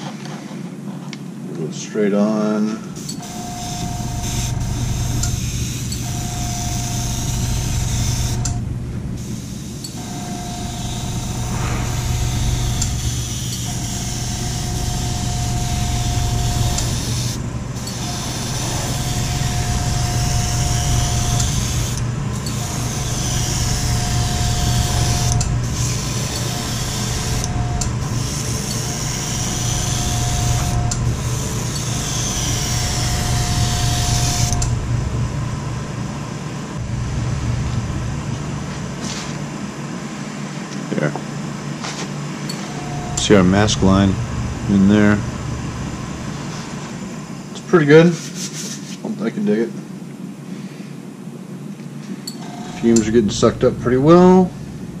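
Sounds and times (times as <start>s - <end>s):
low hum: 2.8s - 47.6s, 52.5s - 55.0s
airbrush hissing: 3.0s - 8.6s, 9.2s - 34.6s.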